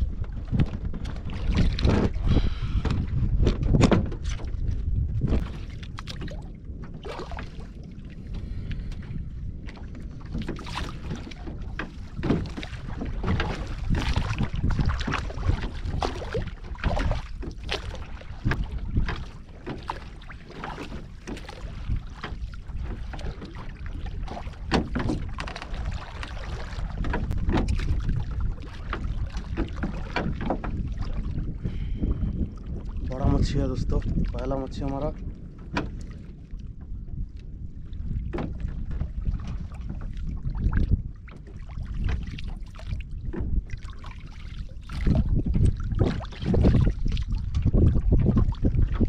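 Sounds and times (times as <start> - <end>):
water slapping wooden hull: 0.0 - 49.0
wind rumbling on microphone: 0.0 - 49.0
knocks on boat: 0.1 - 7.1, 9.6 - 32.2, 35.6 - 36.2, 38.1 - 40.5, 41.3 - 43.9.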